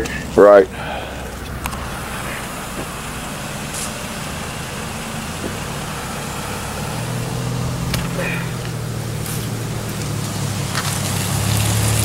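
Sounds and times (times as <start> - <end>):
engine approaching: 0.0 - 12.0
vehicle engines idling: 0.0 - 12.0.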